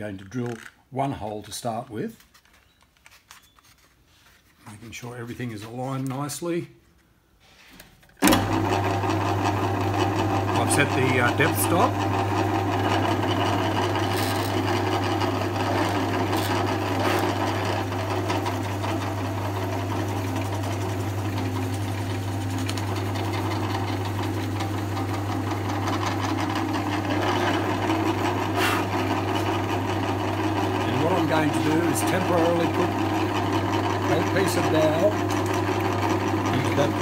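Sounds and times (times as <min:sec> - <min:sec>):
drill bit boring into wood: 0:08.2 - 0:37.0
drill press motor humming: 0:08.2 - 0:37.0.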